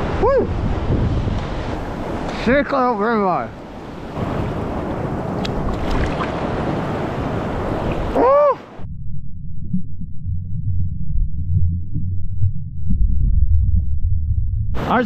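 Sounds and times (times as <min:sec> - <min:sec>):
wind on microphone: 0:00.0 - 0:02.6, 0:03.5 - 0:08.9
surf washing over rocks: 0:00.0 - 0:08.8
muffled underwater rumble: 0:08.7 - 0:15.0.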